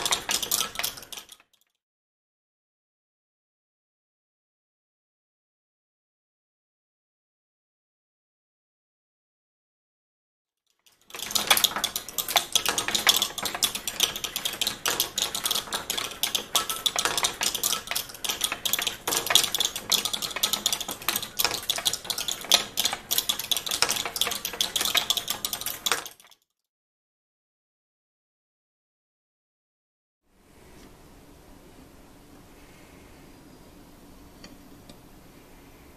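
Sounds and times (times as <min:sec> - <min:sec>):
metal balls clattering against screws: 0:00.0 - 0:01.6, 0:10.8 - 0:26.4.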